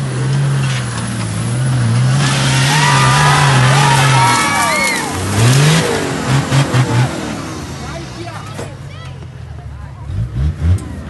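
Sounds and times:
people shouting: 2.4s - 5.8s.

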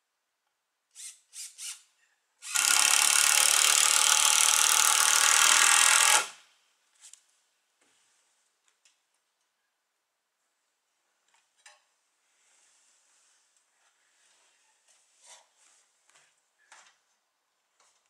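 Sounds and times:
power drill: 0.9s - 1.8s, 2.4s - 6.4s.

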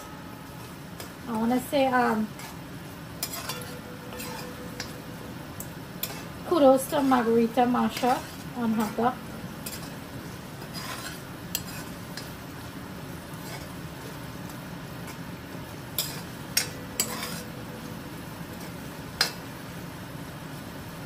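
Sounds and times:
curry sizzling in a pot: 0.3s - 21.0s
spoon clinking against metal pot: 3.2s - 12.3s, 16.0s - 19.4s.

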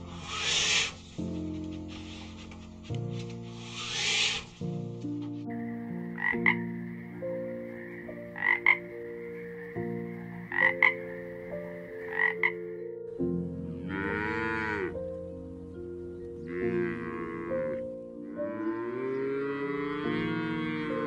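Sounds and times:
frog croaking: 5.5s - 13.0s
cow mooing: 13.4s - 15.0s, 16.4s - 21.0s.

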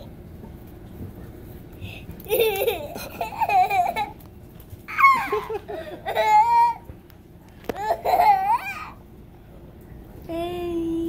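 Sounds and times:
boy laughing: 2.2s - 4.2s, 4.9s - 6.8s, 7.8s - 8.9s.

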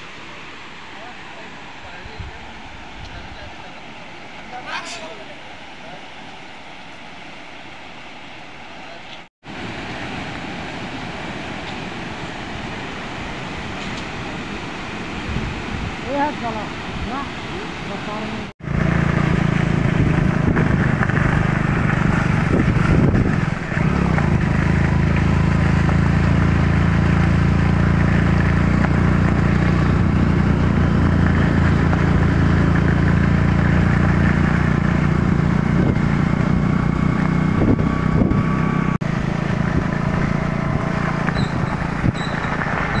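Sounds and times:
motorcycle engine running: 18.6s - 43.0s.

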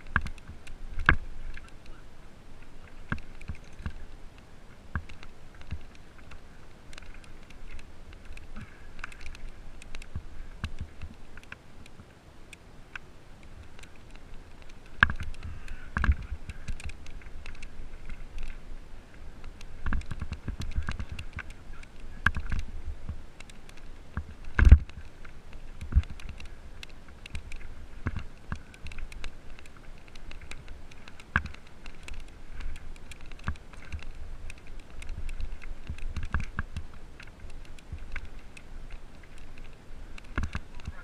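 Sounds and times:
bike rattling and knocking: 14.6s - 17.7s, 19.7s - 23.2s, 25.7s - 38.4s.

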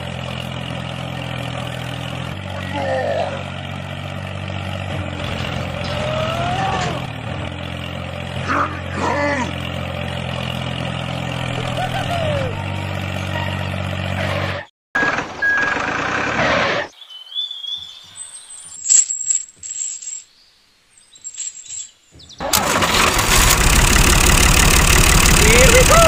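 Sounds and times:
tractor engine running: 0.0s - 16.5s, 22.1s - 26.0s
chain links clinking: 18.7s - 20.3s, 21.2s - 22.0s.

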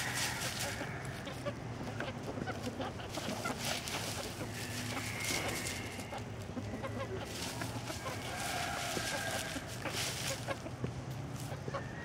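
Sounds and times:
chickens clucking softly: 0.0s - 12.0s
dry leaves rustling: 0.0s - 12.0s.

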